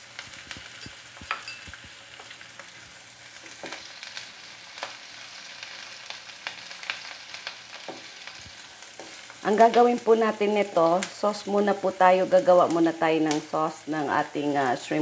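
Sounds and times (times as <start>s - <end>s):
vegetables sizzling in hot oil: 0.0s - 15.0s
spatula scraping and tapping pan: 0.3s - 2.4s, 7.8s - 9.3s.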